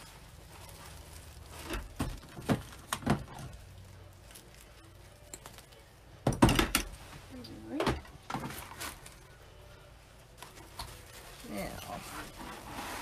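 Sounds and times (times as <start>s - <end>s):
ribbon rustling: 0.0s - 6.1s, 10.2s - 13.0s.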